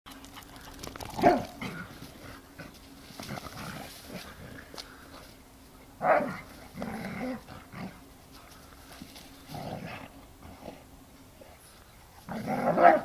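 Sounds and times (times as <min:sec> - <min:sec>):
dogs playing: 0:00.1 - 0:13.0
dog barking loudly: 0:01.2 - 0:01.6, 0:12.7 - 0:13.0.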